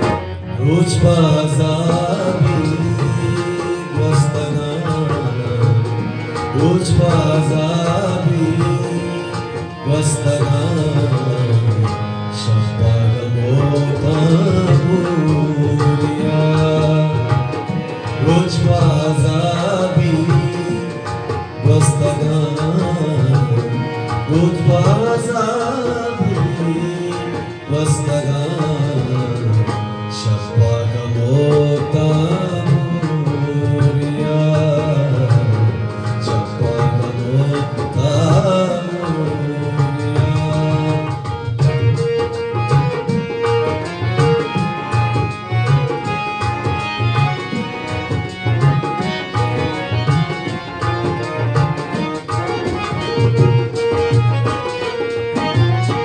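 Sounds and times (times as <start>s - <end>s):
harmonium: 0.0s - 56.0s
man singing: 0.0s - 56.0s
hand drum beat: 31.3s - 56.0s.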